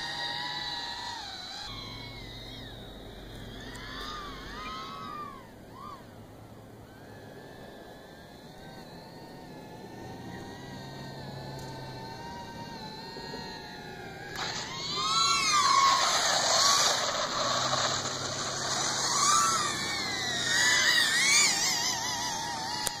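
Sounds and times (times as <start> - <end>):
electric motors whining: 0.0 - 23.0
rushing noise: 14.3 - 22.2.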